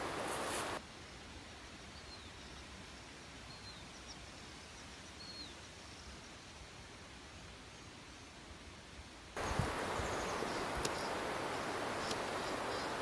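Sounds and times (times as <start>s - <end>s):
high falling bird chirps: 9.4s - 13.0s
loud hissing: 9.4s - 13.0s.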